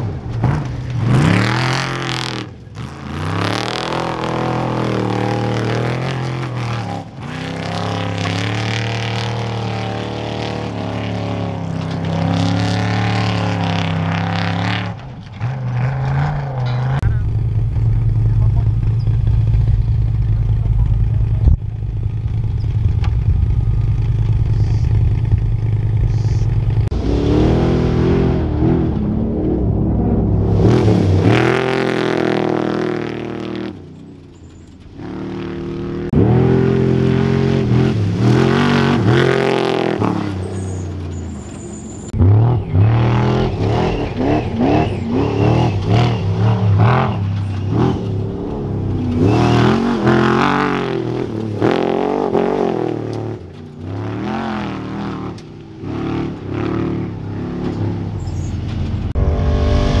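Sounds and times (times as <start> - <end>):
race truck engines revving: 0.0 - 60.0.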